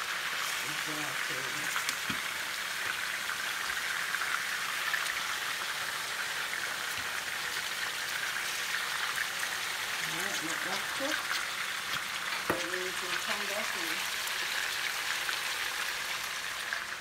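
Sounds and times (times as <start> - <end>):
chicken sizzling in oil: 0.0 - 17.0
oil crackling pops: 1.7 - 3.8, 6.9 - 15.7.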